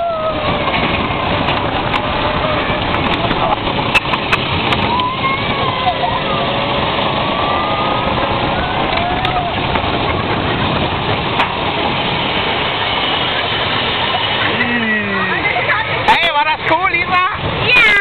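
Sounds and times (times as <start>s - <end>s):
riders screaming: 0.0s - 0.8s, 4.8s - 10.1s
wind rushing: 0.0s - 14.1s
roller coaster wheel rumble: 0.0s - 18.0s.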